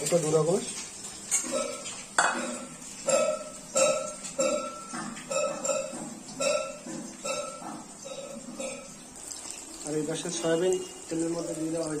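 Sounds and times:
metal spatula clinking on tray: 1.3s - 8.9s.

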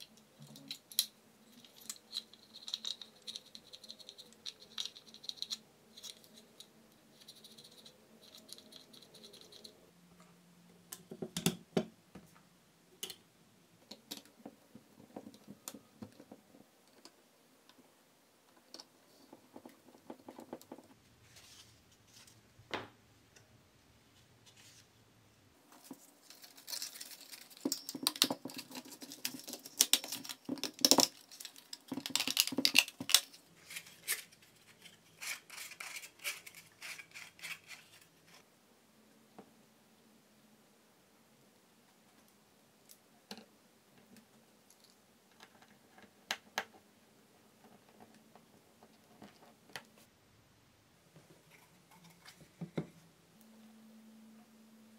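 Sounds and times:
plastic parts clicking and rattling: 0.0s - 9.7s, 25.8s - 38.1s.

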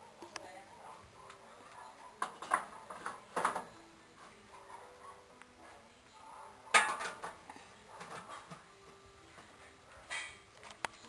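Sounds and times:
metal pot and lid clanking: 6.7s - 7.4s, 10.1s - 10.4s.

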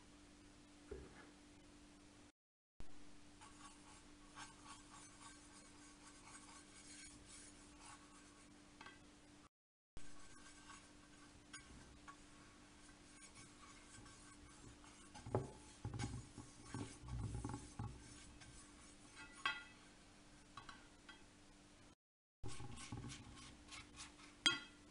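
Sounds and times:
pastry brush scratching pan: 3.4s - 8.6s, 10.0s - 19.8s, 22.4s - 24.9s.

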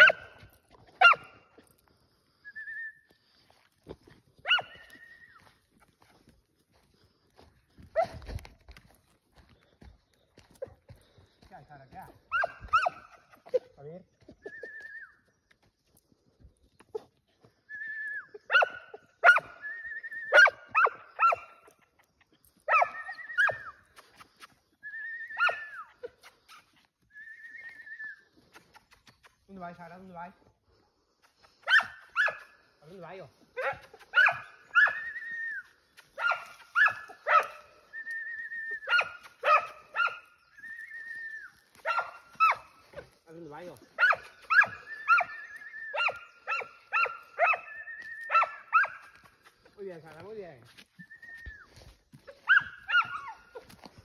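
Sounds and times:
dog yelping: 0.0s - 0.4s, 1.0s - 1.3s, 4.4s - 5.1s, 12.3s - 13.7s, 18.3s - 21.7s, 22.7s - 23.8s, 25.0s - 26.7s, 31.6s - 32.5s, 33.6s - 43.0s, 44.0s - 49.1s, 51.4s - 53.9s.

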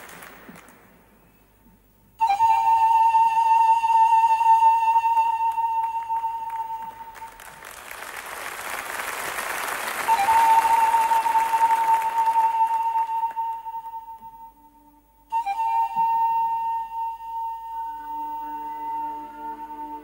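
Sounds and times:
applause: 0.0s - 1.0s, 5.8s - 13.6s
panpipes long high note: 10.0s - 20.0s.

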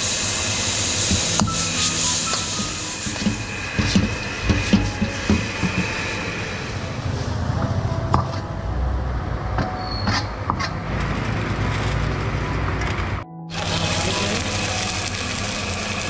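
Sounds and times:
gas burner roaring: 0.0s - 7.7s, 13.5s - 16.0s.

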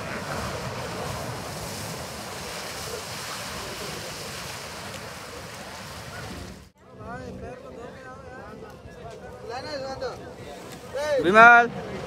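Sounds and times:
wind rushing: 0.0s - 6.7s
water rushing: 0.0s - 6.8s.

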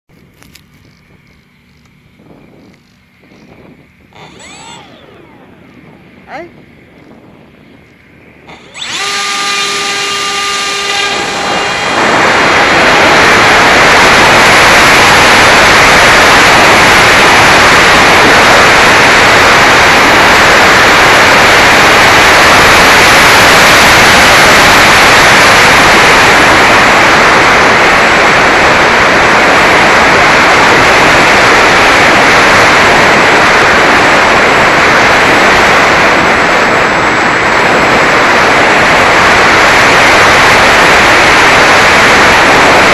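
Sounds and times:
wind and propeller rush: 0.1s - 42.9s
electric motor whine: 0.2s - 42.9s.

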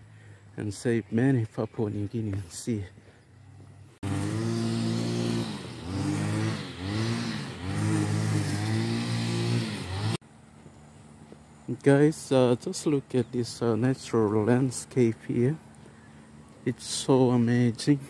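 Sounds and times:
vehicle engine pitch rising and falling: 3.6s - 11.2s.

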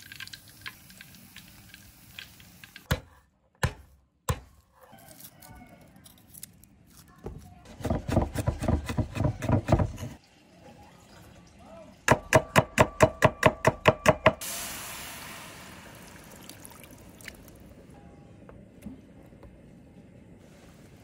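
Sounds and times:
oil splashing into frying pan: 0.0s - 2.7s, 14.4s - 17.7s
cleaver chopping on cutting board: 7.7s - 10.2s.

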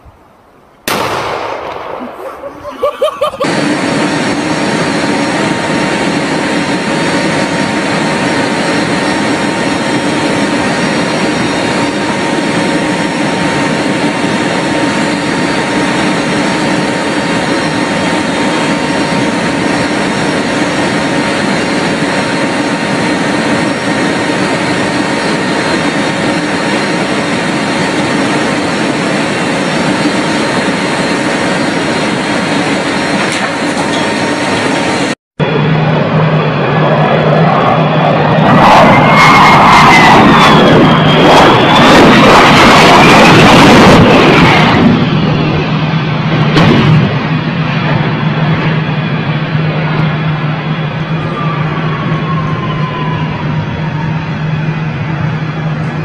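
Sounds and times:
aircraft engine drone: 0.0s - 56.0s.

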